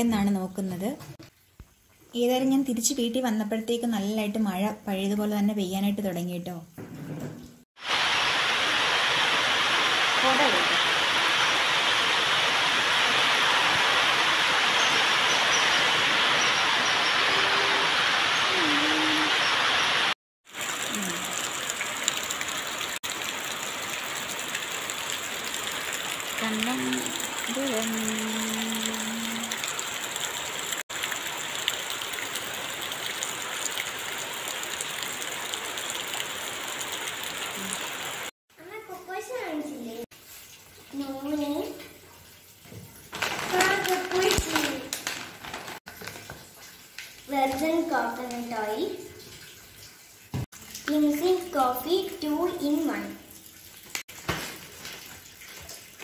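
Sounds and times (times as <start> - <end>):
heavy rain on leaves: 7.8 - 38.3, 43.1 - 46.2.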